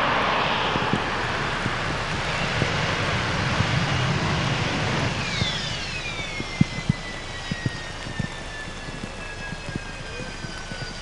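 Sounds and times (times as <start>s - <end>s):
heavy rain: 0.0s - 11.0s
jet engine roaring: 0.0s - 11.0s
sharp clicks: 5.3s - 11.0s.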